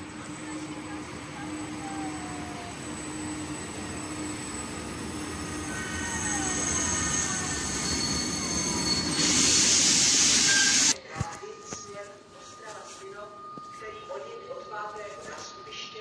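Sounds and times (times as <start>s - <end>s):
electric locomotive rumble: 0.0s - 11.0s
wheel and brake squeals: 1.6s - 11.0s
loud hiss: 6.5s - 11.0s.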